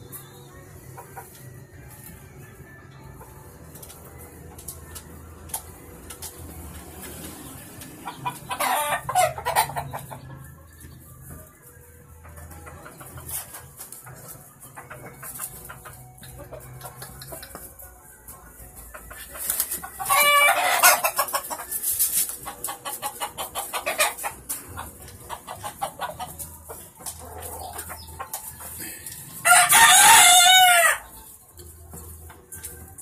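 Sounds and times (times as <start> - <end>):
chicken clucking: 0.0 - 33.0
rooster crowing: 29.4 - 31.0.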